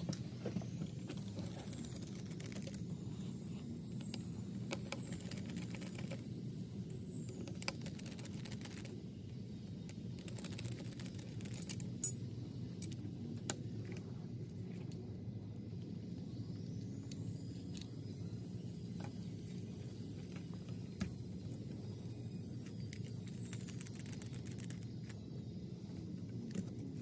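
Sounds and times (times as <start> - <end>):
steady low hum: 0.0 - 27.0
small metal parts clicking: 10.2 - 12.2.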